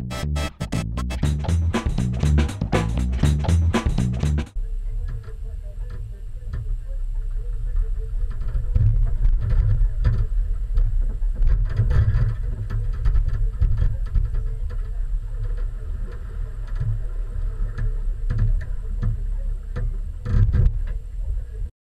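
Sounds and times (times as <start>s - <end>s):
intro music: 0.0s - 4.6s.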